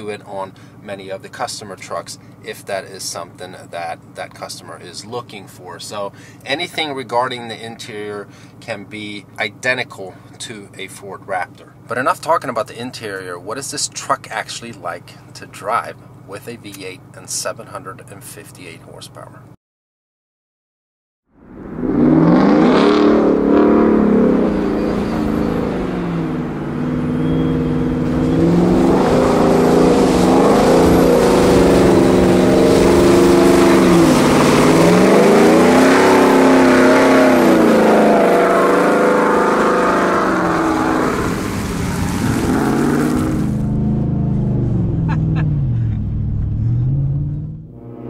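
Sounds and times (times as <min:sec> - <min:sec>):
truck engine revving: 0:21.5 - 0:48.0.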